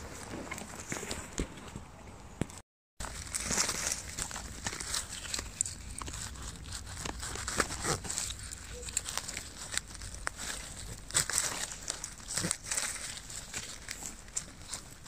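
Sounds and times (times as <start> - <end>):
dry grass and leaves rustling: 3.0 - 15.0
twigs snapping: 3.1 - 15.0.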